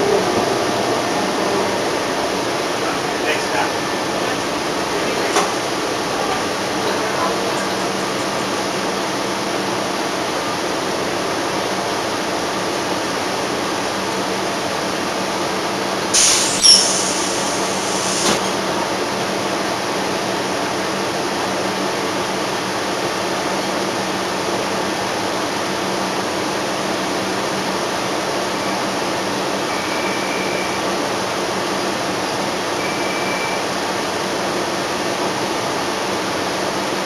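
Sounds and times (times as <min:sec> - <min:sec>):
bus engine idling: 0:00.0 - 0:37.0
air conditioning hiss: 0:16.1 - 0:18.5
faint high beeps: 0:29.7 - 0:30.8, 0:32.8 - 0:33.7.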